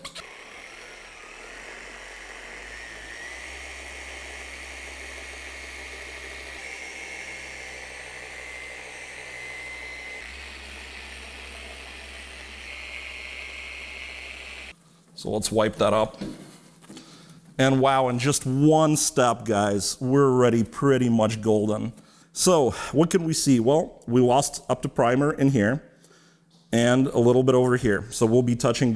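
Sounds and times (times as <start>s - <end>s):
polisher motor whine: 0.0s - 14.8s.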